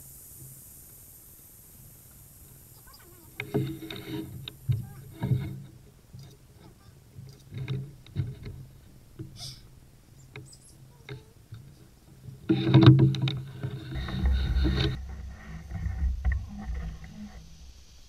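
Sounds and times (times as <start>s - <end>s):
rustling and bumping: 2.9s - 9.4s, 10.4s - 17.7s
knocks and taps on a canoe: 3.4s - 9.4s, 10.3s - 17.2s.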